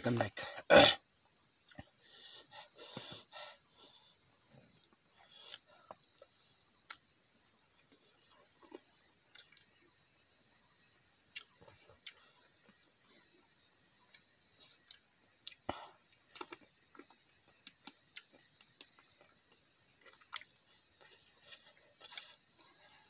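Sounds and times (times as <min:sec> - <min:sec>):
insects chirping: 0:00.0 - 0:23.0
clicks and smacks of eating: 0:05.5 - 0:07.1, 0:08.6 - 0:09.8, 0:11.3 - 0:12.2, 0:14.1 - 0:22.5.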